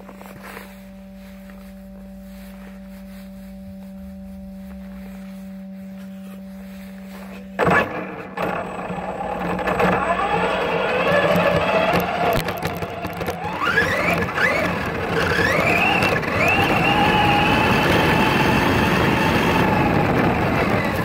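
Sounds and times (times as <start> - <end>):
drivetrain whirring: 0.0 - 21.0
rc truck motor humming and whirring: 7.6 - 21.0.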